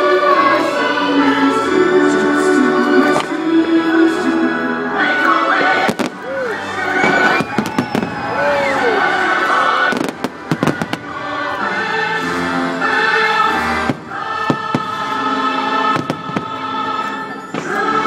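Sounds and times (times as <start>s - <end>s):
choral and orchestral music: 0.0s - 18.0s
fireworks bursting in sharp bangs: 5.6s - 6.2s, 7.0s - 8.3s, 9.8s - 11.2s, 13.6s - 16.9s.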